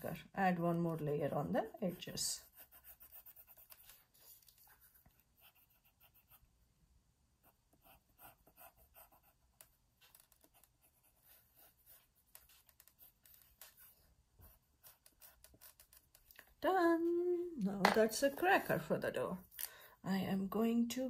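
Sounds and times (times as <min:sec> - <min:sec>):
colored pencil scratching on paper: 0:00.1 - 0:06.5, 0:07.4 - 0:16.4.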